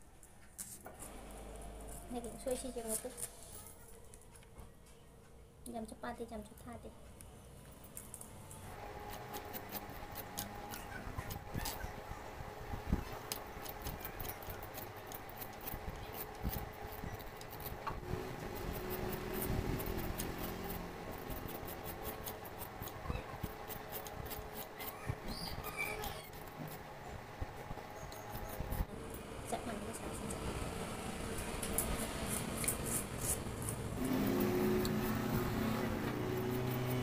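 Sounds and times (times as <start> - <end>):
knife cutting bamboo shoot: 18.4 - 25.0, 31.7 - 37.0.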